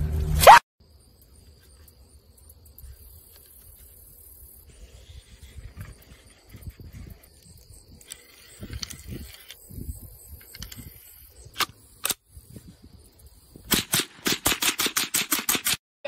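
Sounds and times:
rapid rifle fire: 13.7 - 15.8.

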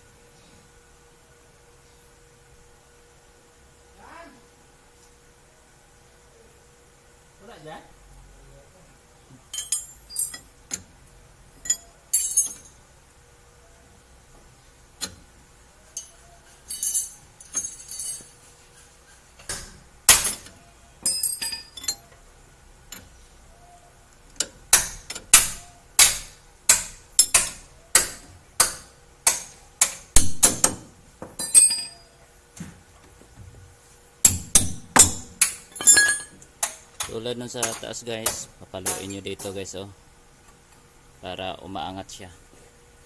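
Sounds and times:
wrench clinking on nut: 9.5 - 10.5, 11.6 - 12.8, 16.0 - 18.3, 20.2 - 22.2, 27.2 - 28.3, 31.4 - 32.1, 34.5 - 39.6.

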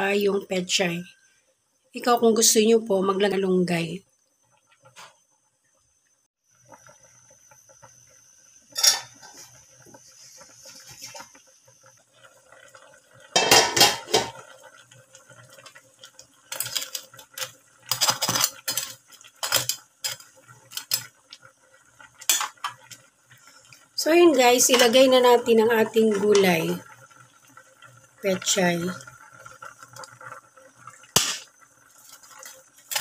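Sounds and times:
coconut milk simmering: 0.0 - 33.0
utensil clanking and scraping wok: 8.7 - 9.5, 13.3 - 14.4, 22.2 - 22.8, 31.2 - 31.5.

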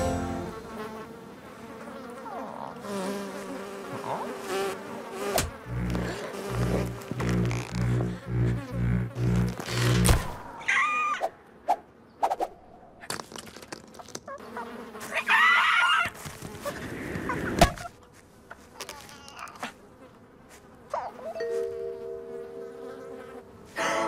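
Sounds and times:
steady buzzing: 5.2 - 10.4.

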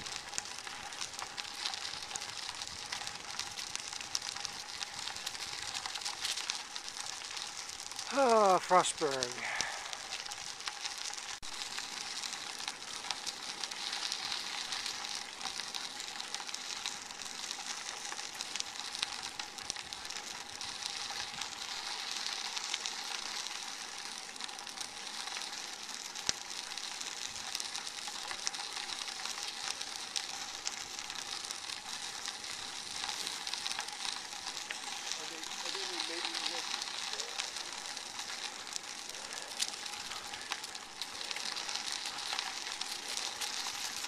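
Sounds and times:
bicycle tyres rolling on gravel: 0.0 - 44.0.

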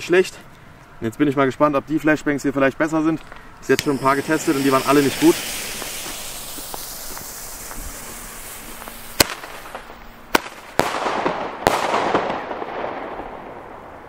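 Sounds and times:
fuse hissing: 3.2 - 10.5
crackle and echo: 3.2 - 14.0
firecracker bangs: 3.8 - 14.0.

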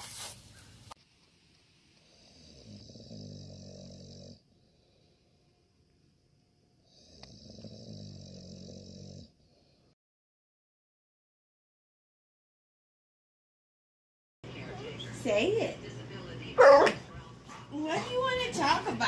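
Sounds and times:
dog snoring: 2.0 - 5.1, 6.8 - 9.8.

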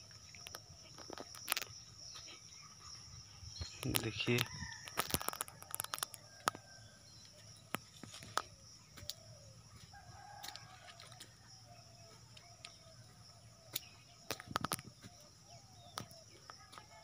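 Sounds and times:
faint rooster crowing: 4.1 - 7.1, 9.7 - 12.1.

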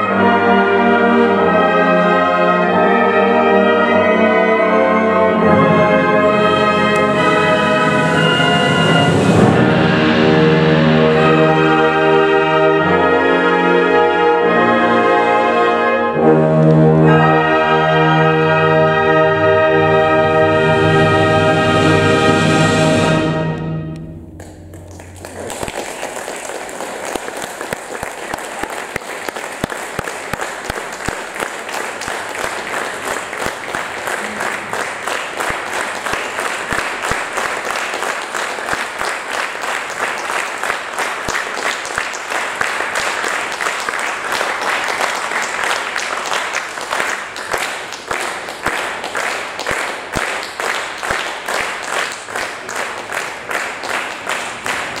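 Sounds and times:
audience applauding: 24.4 - 55.0.

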